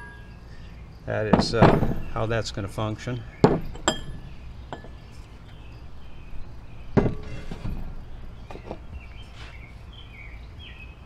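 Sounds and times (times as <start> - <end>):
steel parts knocking on bench: 3.4 - 5.0, 7.0 - 7.8.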